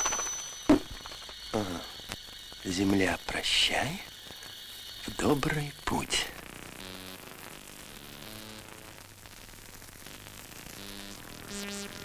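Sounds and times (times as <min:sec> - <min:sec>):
film soundtrack hiss: 0:00.0 - 0:12.0.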